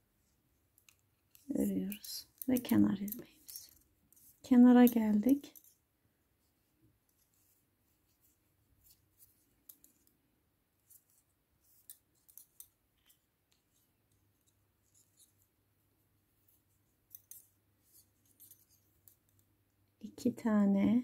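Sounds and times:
knitting needles clicking: 0.7s - 5.8s, 10.9s - 15.4s, 17.1s - 19.5s.

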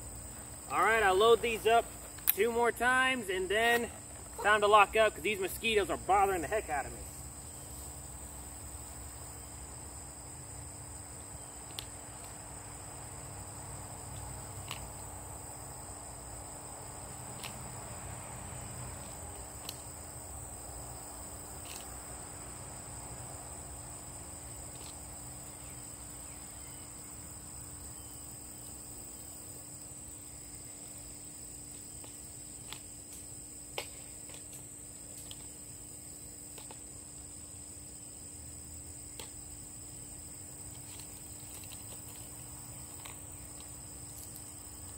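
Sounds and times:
high-pitched insect chorus: 0.0s - 44.9s.

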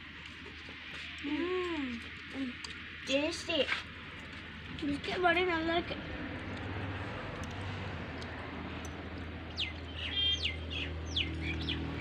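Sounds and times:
small birds chirping: 9.5s - 12.0s.

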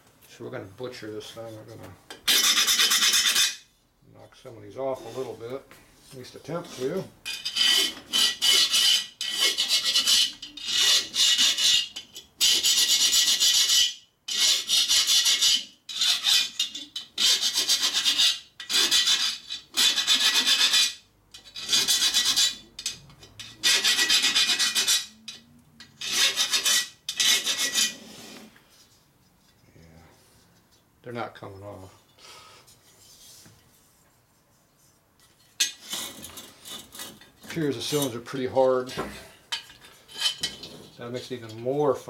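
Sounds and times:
file scraping metal fins: 1.5s - 3.7s, 6.5s - 28.5s, 35.2s - 41.6s.

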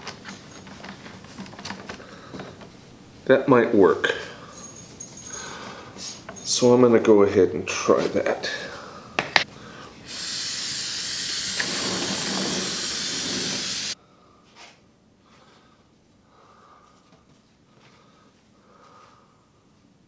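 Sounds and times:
aerosol can spraying: 10.1s - 14.0s.

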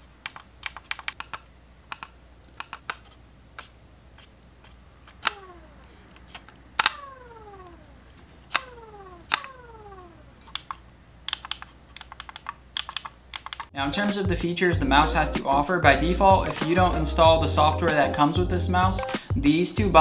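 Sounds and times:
scroll wheel spinning whir: 1.9s - 13.7s.

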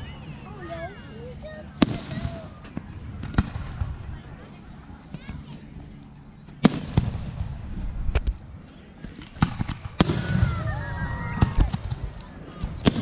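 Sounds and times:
low rumble: 1.6s - 13.0s
fireworks bangs: 1.8s - 4.1s, 6.6s - 7.6s, 9.4s - 11.9s.

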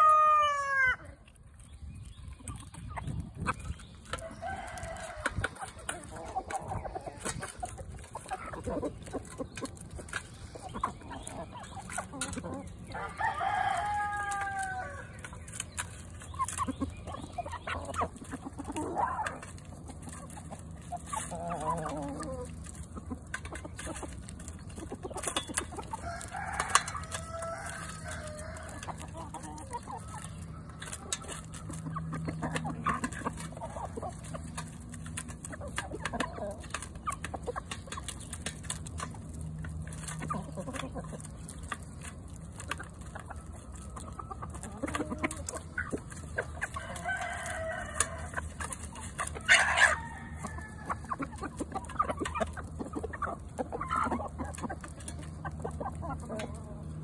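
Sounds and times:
chickens clucking: 0.0s - 57.0s
rooster crowing: 13.0s - 15.1s, 26.0s - 28.9s, 46.8s - 48.3s, 49.5s - 51.1s
beaks pecking shells on metal pan: 21.7s - 56.5s.

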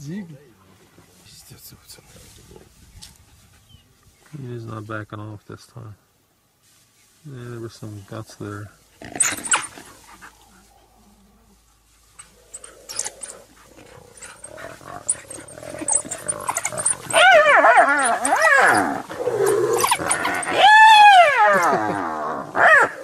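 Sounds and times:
animals scuffling: 6.6s - 20.9s
high-pitched squealing calls: 14.1s - 21.7s.

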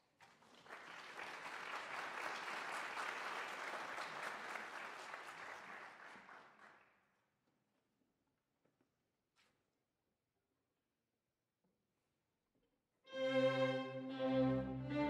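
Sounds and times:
audience applauding: 0.1s - 7.0s.

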